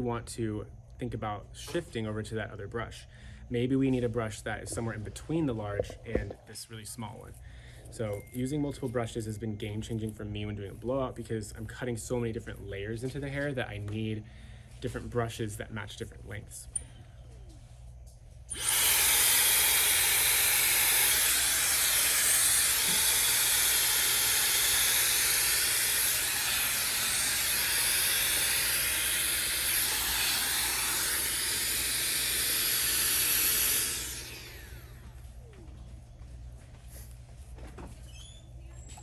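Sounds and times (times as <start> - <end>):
hair dryer blowing: 18.5 - 35.3.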